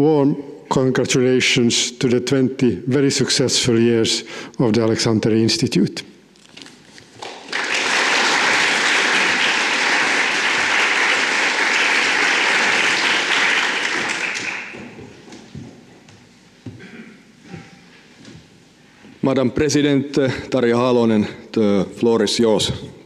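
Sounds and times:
audience applauding: 0:07.2 - 0:15.2.

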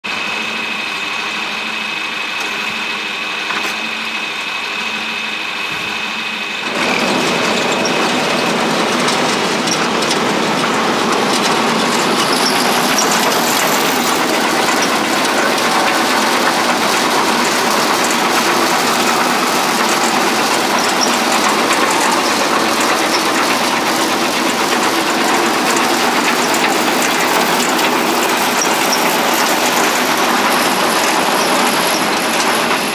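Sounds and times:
tractor engine idling: 0:00.2 - 0:32.9
fertilizer spreader clattering: 0:05.6 - 0:32.9.

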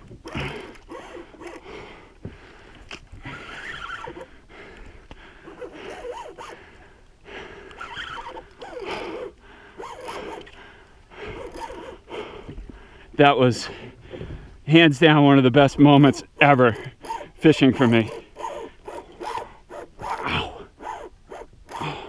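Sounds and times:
man breathing hard: 0:00.4 - 0:03.6, 0:04.2 - 0:14.7.

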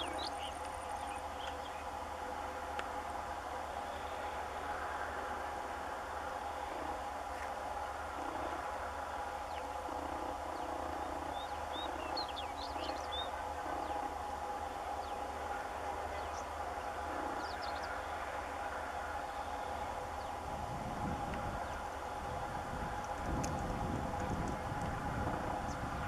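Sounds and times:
birds chirping: 0:00.0 - 0:02.0, 0:06.7 - 0:20.6
distant diesel locomotives droning: 0:00.0 - 0:26.0.

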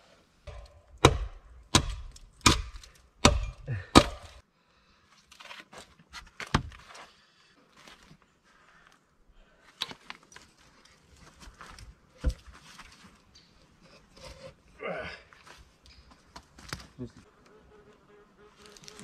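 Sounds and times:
axe chopping wood: 0:00.5 - 0:04.4.

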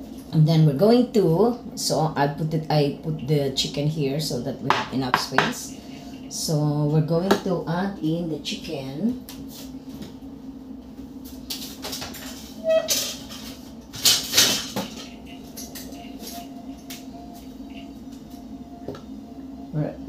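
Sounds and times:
steady low hum: 0:00.0 - 0:20.0
kitchen knocks and clatters: 0:11.8 - 0:15.9.

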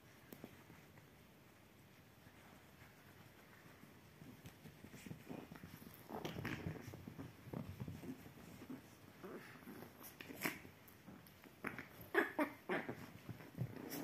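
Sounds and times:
paws scuffling on blanket: 0:00.0 - 0:14.0
puppy vocalizations: 0:05.0 - 0:14.0.

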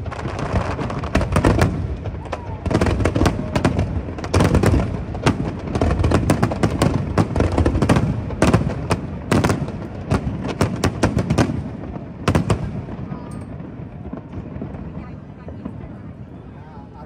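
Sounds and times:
firework bangs and crackles: 0:00.0 - 0:17.0.

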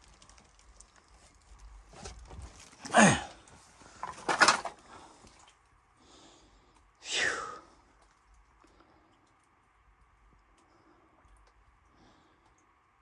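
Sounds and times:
faint clicks and rustles: 0:00.0 - 0:05.8, 0:07.9 - 0:13.0
person sighing heavily: 0:02.8 - 0:03.5, 0:07.0 - 0:07.7.

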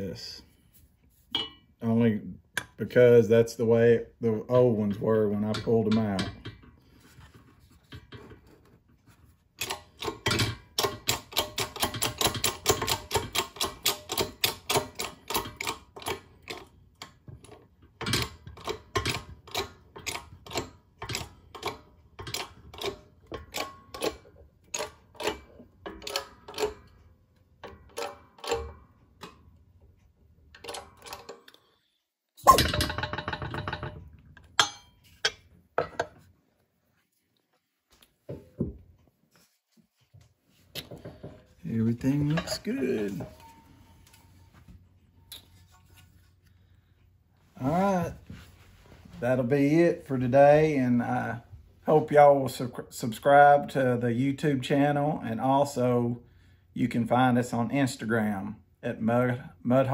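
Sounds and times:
metallic clang: 0:01.3 - 0:01.8, 0:32.4 - 0:36.2, 0:41.0 - 0:44.6.

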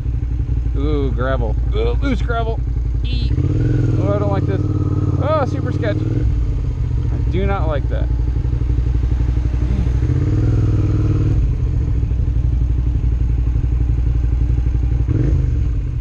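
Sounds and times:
motorcycle engine chugging: 0:00.0 - 0:16.0.

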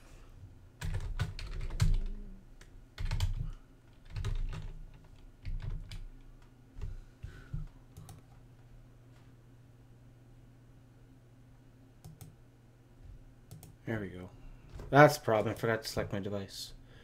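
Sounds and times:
typing on computer keyboard: 0:00.8 - 0:02.1, 0:03.0 - 0:06.1, 0:13.5 - 0:13.7.

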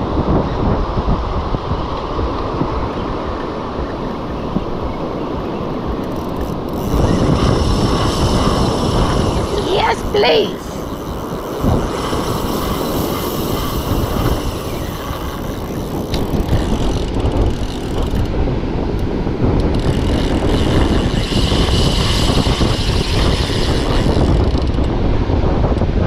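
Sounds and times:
wind buffeting the microphone: 0:00.0 - 0:26.0
surf washing onto beach: 0:07.0 - 0:15.7.

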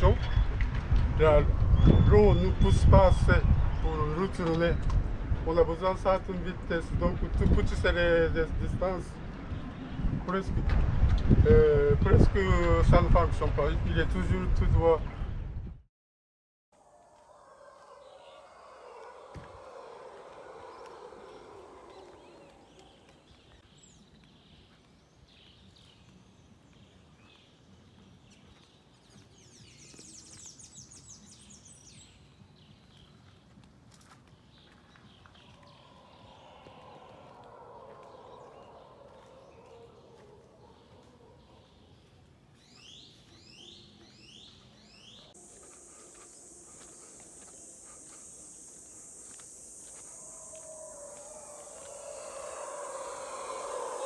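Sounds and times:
animal sweeping calls: 0:16.8 - 0:23.3, 0:45.0 - 0:54.0
low rushing noise: 0:16.8 - 0:23.3, 0:45.4 - 0:54.0
bird chirps: 0:16.8 - 0:24.8, 0:42.6 - 0:54.0
background hiss: 0:42.7 - 0:54.0
high-pitched insect buzz: 0:45.4 - 0:54.0.

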